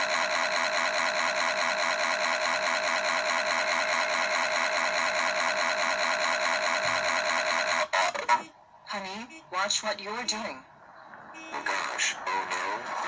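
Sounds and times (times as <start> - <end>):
car engine running: 0.0 - 8.5, 10.6 - 13.0.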